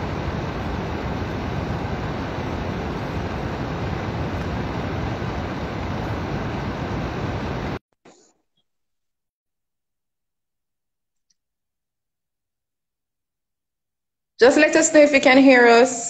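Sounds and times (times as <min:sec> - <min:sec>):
loud static-like rushing noise: 0:00.0 - 0:07.8.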